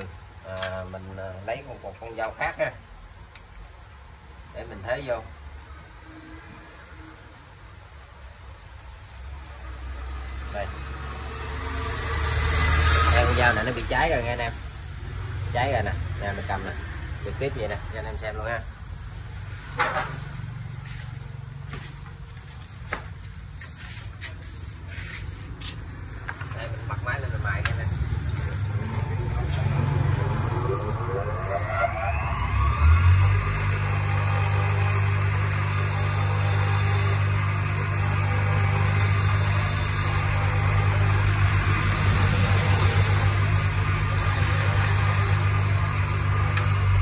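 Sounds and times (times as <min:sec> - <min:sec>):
workshop machinery humming: 0:05.2 - 0:47.0
electric grinder running: 0:10.1 - 0:13.9, 0:27.6 - 0:47.0.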